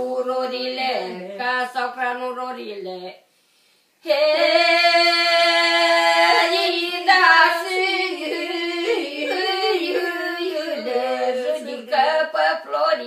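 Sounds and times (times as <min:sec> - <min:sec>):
elderly woman singing: 0:00.0 - 0:03.2, 0:04.0 - 0:13.0.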